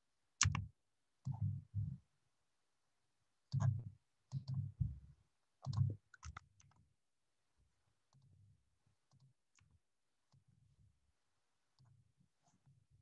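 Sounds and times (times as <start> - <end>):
computer mouse clicking: 0.4 - 0.7, 5.6 - 6.8.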